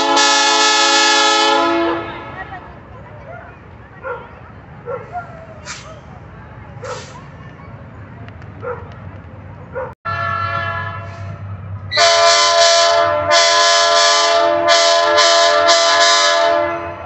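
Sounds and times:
locomotive air horn chord: 0.0 - 2.4, 10.1 - 17.0.

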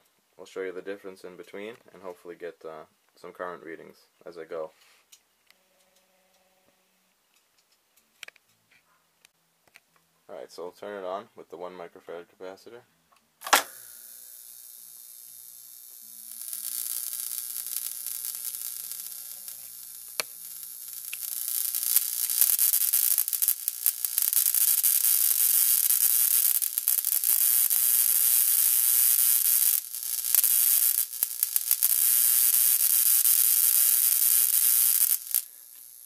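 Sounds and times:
electric arc hissing and crackling: 13.4 - 36.0.

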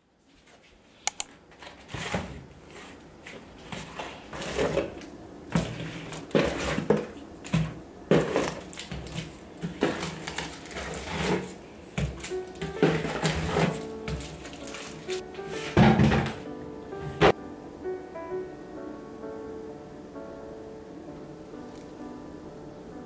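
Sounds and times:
sharp click: 1.1 - 1.3
packaging rustling and crinkling: 8.2 - 15.7.

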